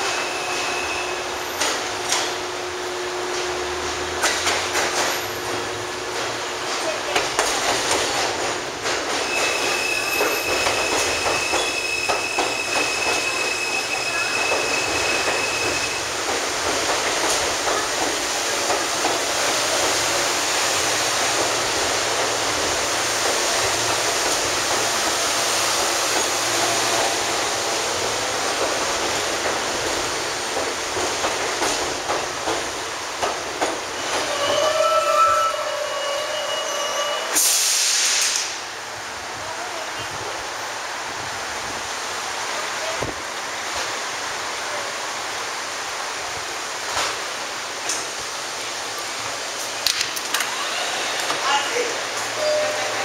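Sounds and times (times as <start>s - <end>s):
train wheels clattering over rails: 3.2s - 34.6s
short hiss: 37.4s - 38.6s.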